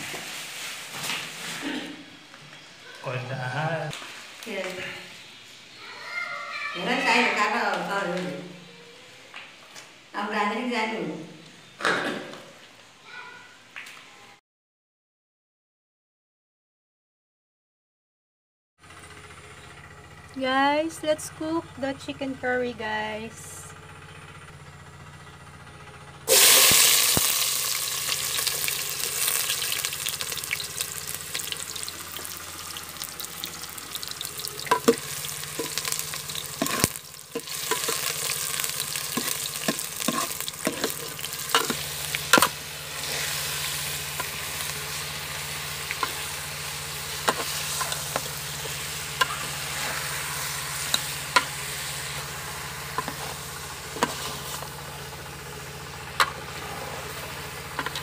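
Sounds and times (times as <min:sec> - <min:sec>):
onions sizzling in hot oil: 0:00.0 - 0:01.4, 0:02.6 - 0:07.8, 0:26.3 - 0:58.0
metal spoon scraping a pot: 0:36.6 - 0:38.2, 0:39.1 - 0:43.4.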